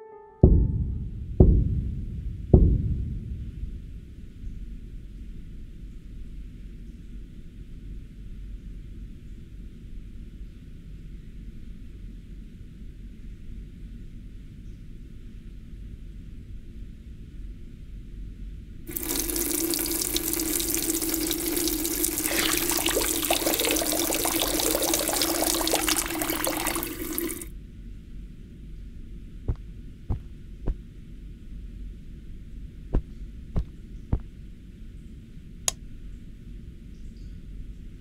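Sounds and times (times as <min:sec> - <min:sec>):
tap water running: 0:18.9 - 0:27.5
water splashing over hands: 0:18.9 - 0:27.5.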